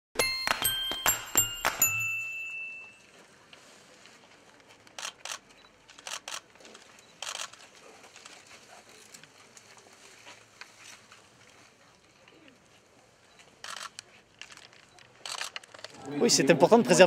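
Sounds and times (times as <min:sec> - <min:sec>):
bell-like chime: 0:00.2 - 0:03.2
faint outdoor ambience: 0:00.2 - 0:17.0.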